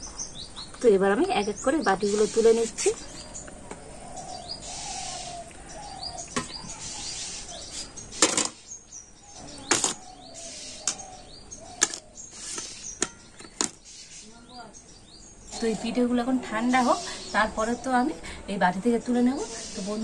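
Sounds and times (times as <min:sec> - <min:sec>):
birds chirping: 0:00.0 - 0:20.0.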